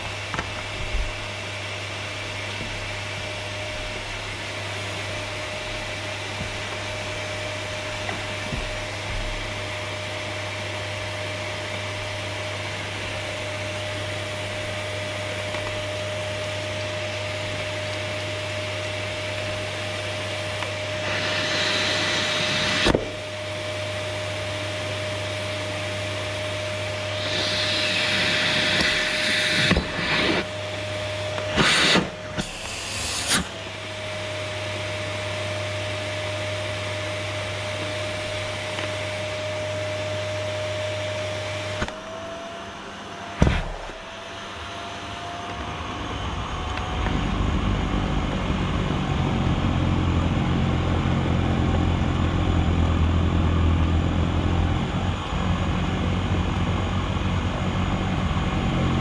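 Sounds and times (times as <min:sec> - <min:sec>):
vacuum cleaner motor whine: 0:00.0 - 0:59.0
rushes of hissing air: 0:19.6 - 0:23.2, 0:26.8 - 0:33.6.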